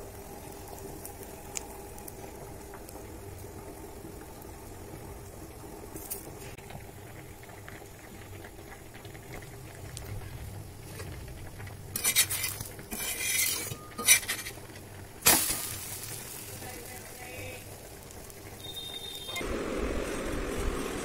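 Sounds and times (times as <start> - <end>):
metal utensils clattering: 11.9 - 14.7.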